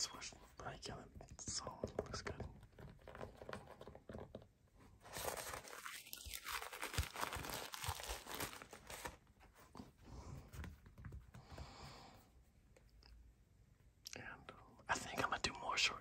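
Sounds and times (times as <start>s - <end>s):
sneaker handling rustling: 4.9s - 11.5s.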